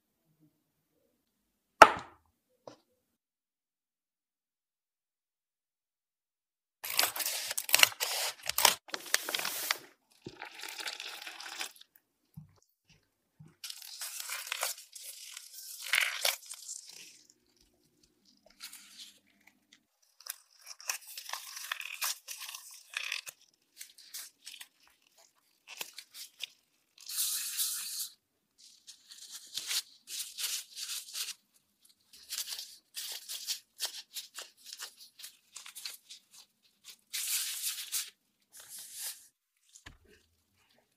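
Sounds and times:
scissors snipping plastic packet: 0:06.8 - 0:09.9
plastic gloves crinkling: 0:06.8 - 0:11.9, 0:13.6 - 0:40.9.

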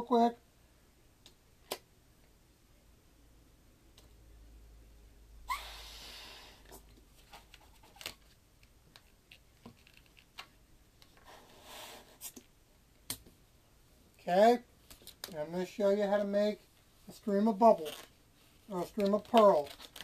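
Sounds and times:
rush of air inflating balloon: 0:05.5 - 0:06.7
breath blowing into balloon: 0:05.5 - 0:06.8, 0:11.3 - 0:12.3
latex balloon clicks and rubs: 0:06.7 - 0:12.5, 0:18.8 - 0:20.0.

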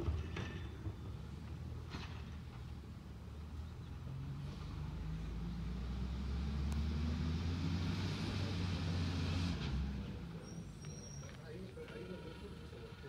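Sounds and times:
truck engine revving: 0:04.1 - 0:10.3.

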